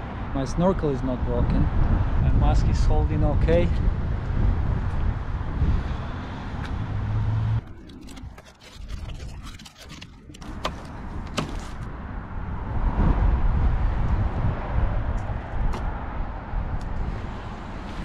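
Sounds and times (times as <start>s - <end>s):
paper mask rubbing on plastic: 7.6s - 11.8s.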